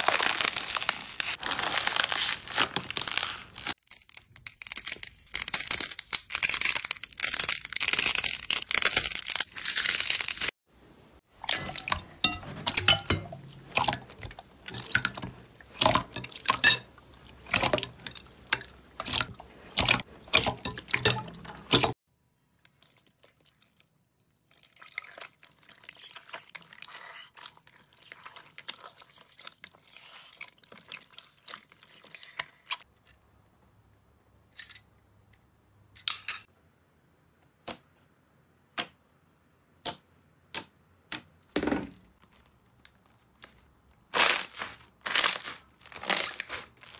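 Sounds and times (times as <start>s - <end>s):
water sloshing and dripping: 11.3s - 22.0s
sticky slime squelching: 13.4s - 22.0s, 22.6s - 32.9s, 42.2s - 46.9s.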